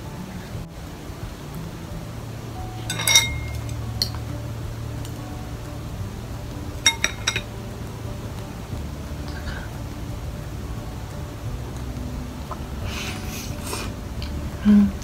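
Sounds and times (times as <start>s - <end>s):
utensils clinking against dishes: 2.8s - 3.8s, 6.9s - 7.5s.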